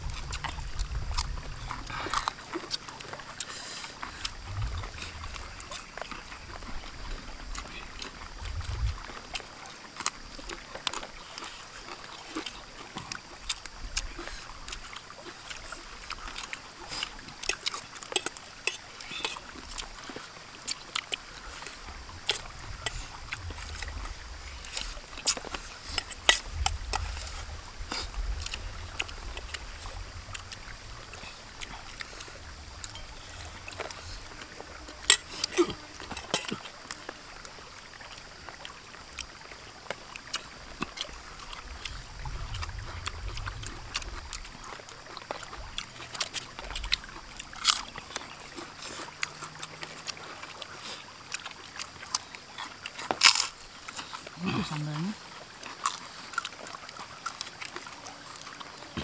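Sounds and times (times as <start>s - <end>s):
low rumble: 0.0s - 2.1s, 4.2s - 5.7s, 8.4s - 9.0s, 41.1s - 45.0s
chewing and lip smacks: 0.0s - 59.0s
clicks of food and bowls: 16.1s - 22.4s, 32.8s - 37.2s.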